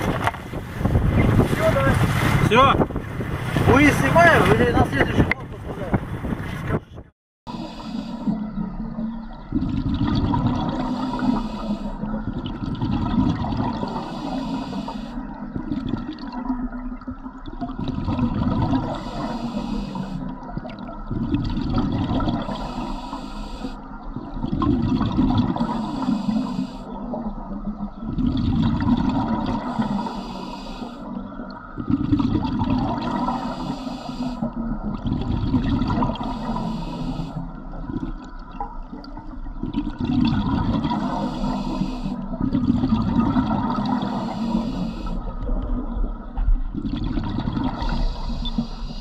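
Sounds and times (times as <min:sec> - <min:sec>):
exhaled bubbles rumbling: 0:00.0 - 0:49.0
regulator inhale hissing: 0:07.5 - 0:08.4, 0:10.8 - 0:12.0, 0:14.0 - 0:15.2, 0:18.9 - 0:20.2, 0:22.5 - 0:23.8, 0:25.7 - 0:26.9, 0:29.7 - 0:31.1, 0:33.4 - 0:34.5, 0:36.2 - 0:37.6, 0:41.0 - 0:42.2, 0:44.0 - 0:45.3, 0:47.8 - 0:49.0.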